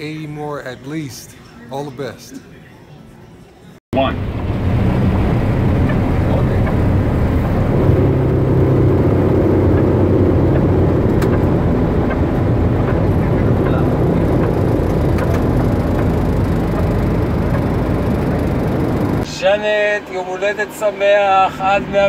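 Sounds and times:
jet engines rumbling: 4.0 - 19.3.

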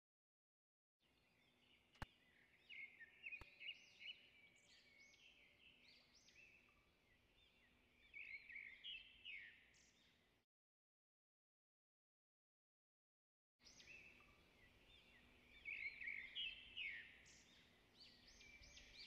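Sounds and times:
birds chirping and twittering: 1.2 - 10.2, 13.6 - 19.0.

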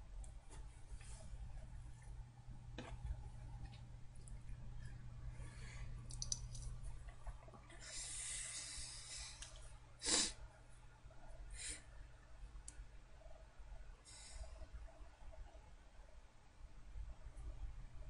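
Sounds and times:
low electrical hum: 0.0 - 18.0
person breathing: 5.3 - 6.2, 7.8 - 10.4, 11.5 - 12.0, 14.0 - 14.7
faint clicks: 6.1 - 7.8
person sniffing: 10.0 - 10.4.

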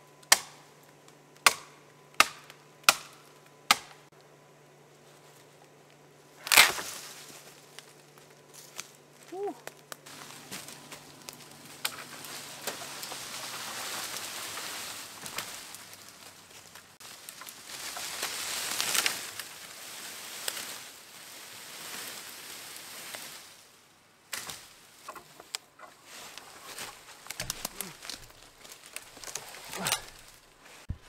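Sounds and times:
twigs cracking: 5.2 - 21.0, 24.3 - 31.0
branch dragged through dry leaves: 6.4 - 9.4, 10.0 - 31.0.

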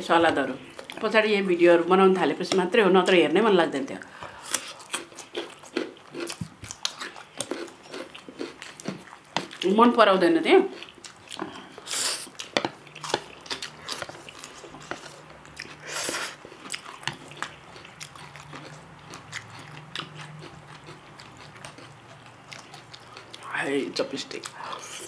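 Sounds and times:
wet chewing and mouth smacks: 4.5 - 9.7, 10.7 - 23.5.

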